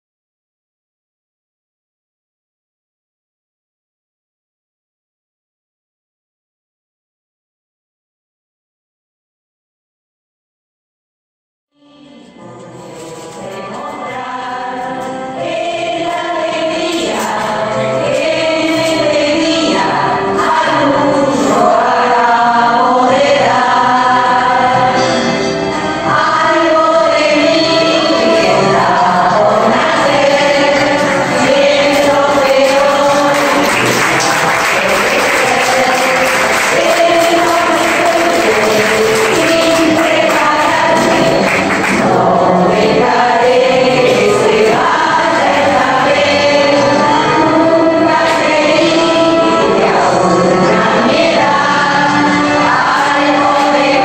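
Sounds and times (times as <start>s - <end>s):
group singing in unison: 11.8s - 54.0s
audience applause: 32.4s - 42.1s.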